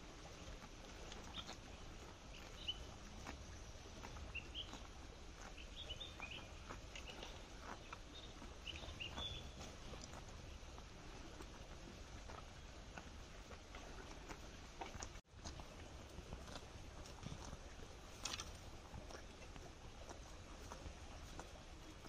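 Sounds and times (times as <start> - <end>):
calf chewing grass: 0.0 - 22.0
small birds chirping: 1.2 - 10.6.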